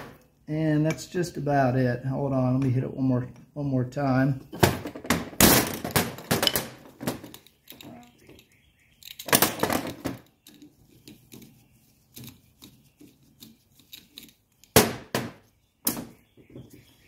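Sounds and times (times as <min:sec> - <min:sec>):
tools clattering on steel workbench: 0:04.6 - 0:08.4.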